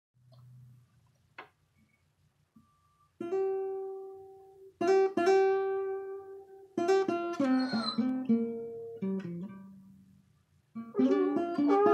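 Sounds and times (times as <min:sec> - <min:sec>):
acoustic guitar chords: 0:10.8 - 0:11.9.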